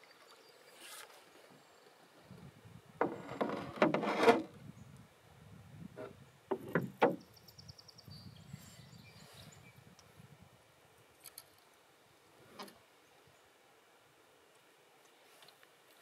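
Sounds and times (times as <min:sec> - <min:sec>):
paddle scraping canoe hull: 0:00.7 - 0:01.2, 0:03.0 - 0:04.6.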